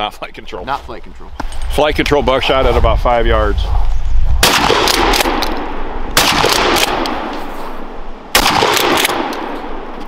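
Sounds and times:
shotgun blasts with echo: 4.4 - 7.5, 8.3 - 10.0.

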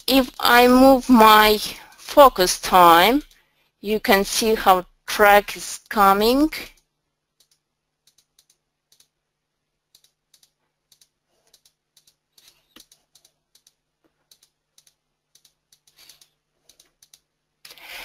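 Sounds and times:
computer keys clicking: 6.7 - 9.2, 9.9 - 17.8.

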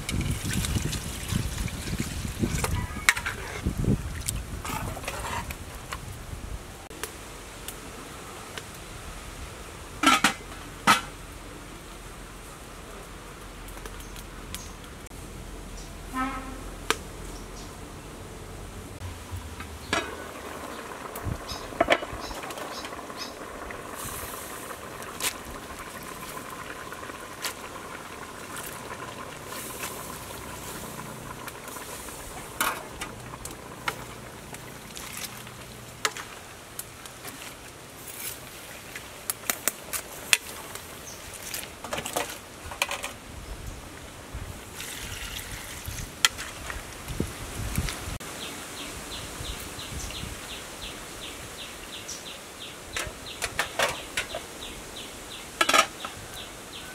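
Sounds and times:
soup simmering in a pot: 0.0 - 6.0, 19.0 - 42.5.

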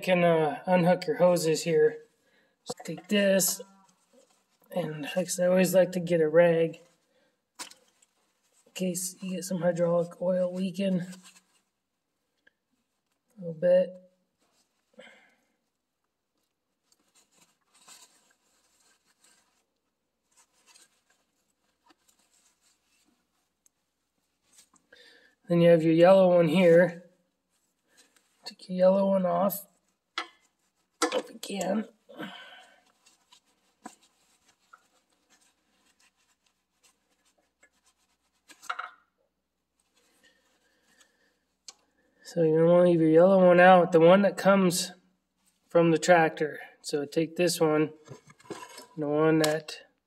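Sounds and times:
gloves rustling on hose coupler: 2.0 - 4.8, 6.7 - 9.4, 10.7 - 13.4, 14.2 - 25.4, 27.3 - 28.5, 29.7 - 42.2, 47.9 - 49.6.

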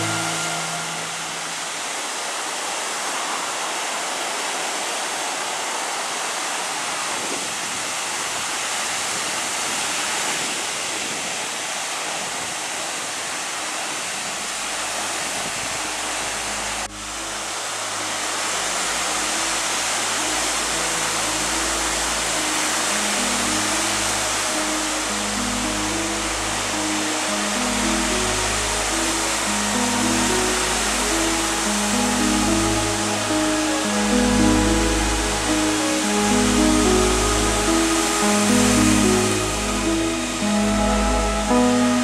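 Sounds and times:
faint low music notes: 0.0 - 2.0, 15.5 - 42.0
ocean waves breaking: 0.0 - 42.0.

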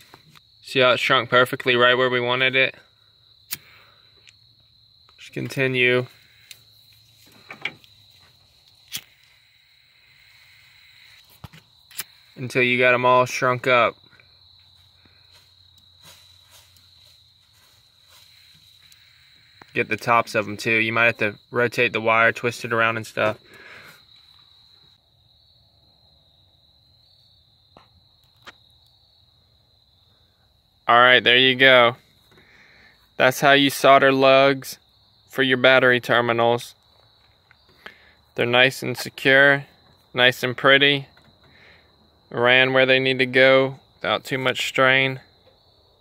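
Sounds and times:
crickets chirping: 0.0 - 46.0
insect trill: 0.0 - 46.0
faint hiss: 5.1 - 13.9.

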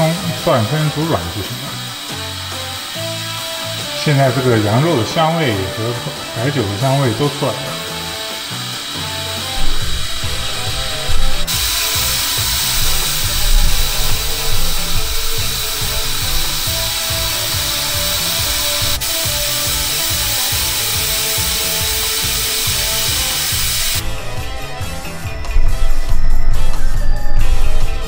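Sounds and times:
steam hissing from valve: 0.0 - 24.2
background music with low beat: 0.0 - 28.0.

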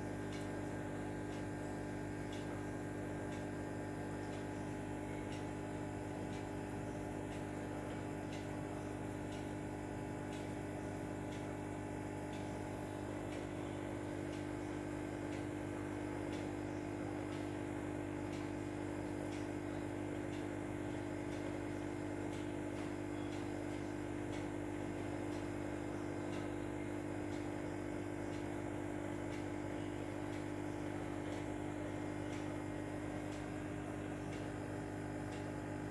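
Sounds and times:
steady mechanical hum: 0.0 - 35.9
faint regular ticks: 0.1 - 35.9.

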